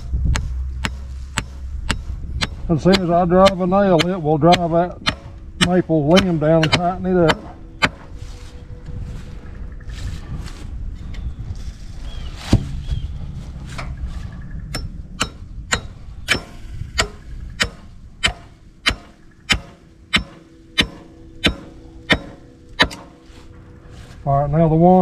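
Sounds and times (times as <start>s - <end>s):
nail ringing: 14.7s - 23.2s.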